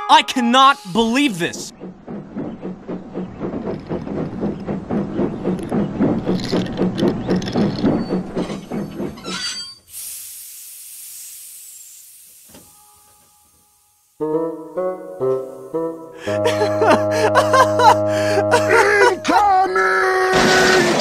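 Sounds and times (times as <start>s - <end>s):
steam locomotive chuffing: 0.3s - 14.5s, 15.3s - 20.2s
long hiss of steam: 9.8s - 14.2s.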